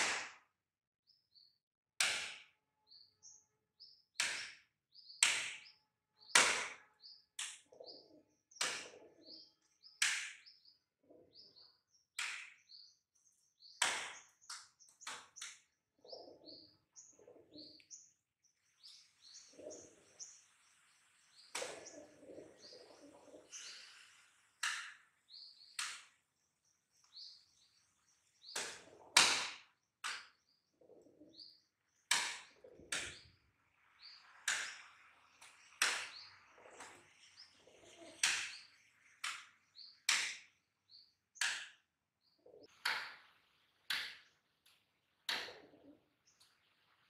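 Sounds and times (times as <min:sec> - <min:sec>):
pigeon wing slaps: 0:00.0 - 0:00.5, 0:02.0 - 0:02.6, 0:04.2 - 0:05.7, 0:06.4 - 0:07.7, 0:08.6 - 0:09.0, 0:10.0 - 0:10.4, 0:12.2 - 0:12.7, 0:13.8 - 0:15.6, 0:21.5 - 0:22.1, 0:24.6 - 0:25.0, 0:28.6 - 0:30.4, 0:32.1 - 0:33.3, 0:34.3 - 0:37.0, 0:38.1 - 0:38.6, 0:40.1 - 0:40.6, 0:45.3 - 0:45.8
faint bird chirps: 0:02.8 - 0:29.2, 0:29.9 - 0:47.0.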